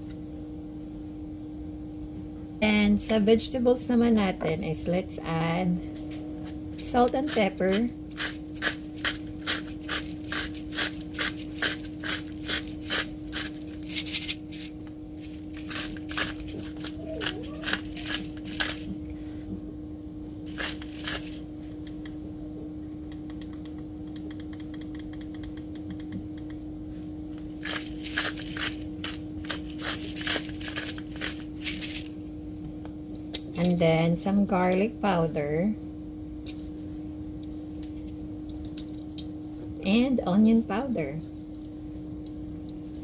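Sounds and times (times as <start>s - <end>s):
low hum: 0.0s - 42.8s
grinder clicking: 6.8s - 18.9s, 20.5s - 21.4s, 27.4s - 32.1s.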